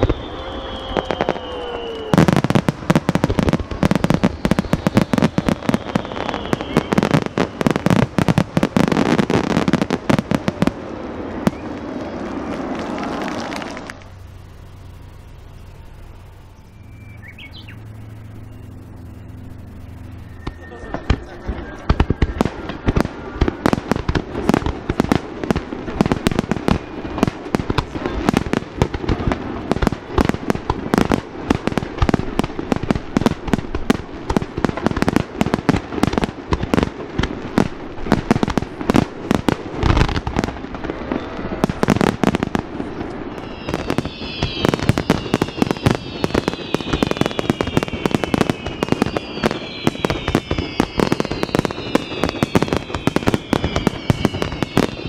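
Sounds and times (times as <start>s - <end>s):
whistles gliding down: 0.0s - 9.6s, 11.4s - 24.1s, 40.9s - 55.0s
fireworks bursting: 0.0s - 55.0s.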